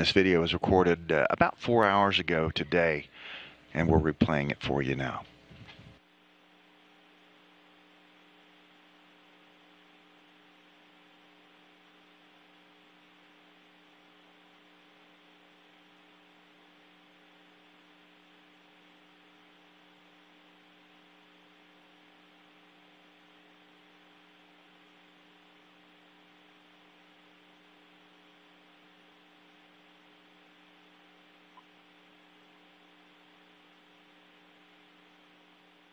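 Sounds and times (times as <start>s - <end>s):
low hum of even tones: 0.0s - 6.0s.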